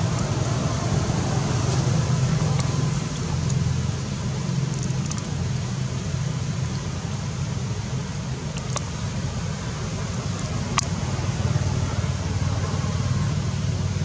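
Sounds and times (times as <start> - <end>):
low background rumble: 0.0 - 14.0
faint high ticks: 4.6 - 5.7, 8.4 - 9.0.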